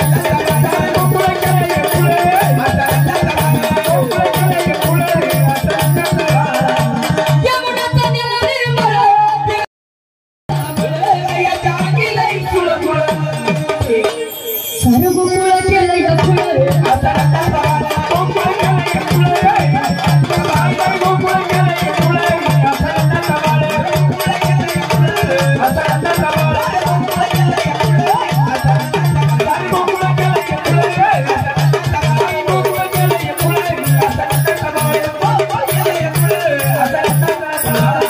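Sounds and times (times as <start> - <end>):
low drum beat: 0.0 - 7.7
fast rattling percussion: 0.0 - 9.6, 10.5 - 38.0
wavering melody: 13.7 - 17.0, 32.3 - 38.0.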